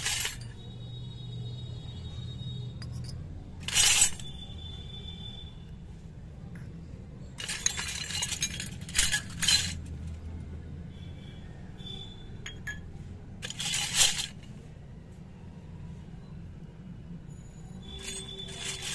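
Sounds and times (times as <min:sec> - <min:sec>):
metal utensils clinking: 0:00.0 - 0:00.6, 0:02.8 - 0:04.4, 0:07.4 - 0:10.1, 0:12.4 - 0:14.5, 0:17.9 - 0:18.9.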